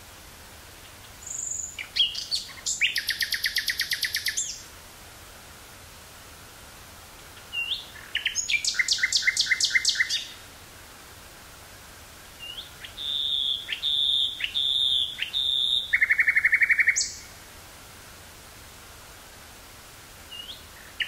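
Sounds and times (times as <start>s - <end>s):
nightingale singing: 0.8s - 4.7s, 7.4s - 10.5s, 12.4s - 17.4s, 20.3s - 21.0s.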